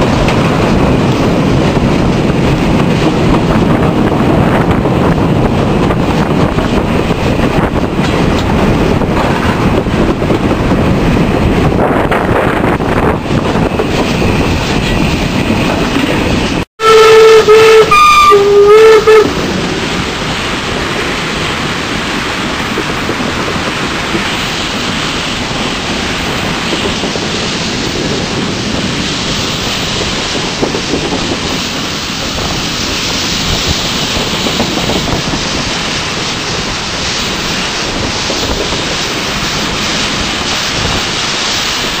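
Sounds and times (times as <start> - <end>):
rushing wind: 0.0 - 42.0
steam locomotive running: 0.0 - 42.0
steam whistle blasts: 16.8 - 19.4.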